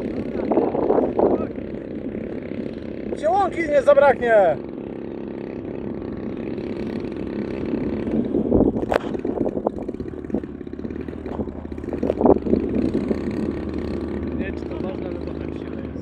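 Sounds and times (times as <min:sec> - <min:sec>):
model aircraft engine running: 0:00.0 - 0:16.0.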